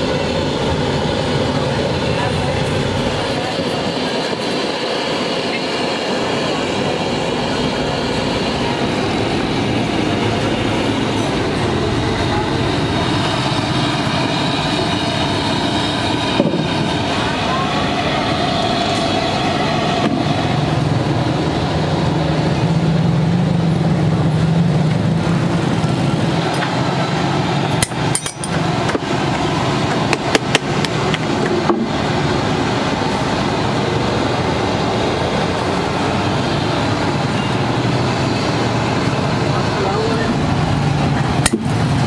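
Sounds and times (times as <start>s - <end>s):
steady background rumble: 0.0s - 42.0s
knife clicks and clinks on metal: 27.8s - 28.6s.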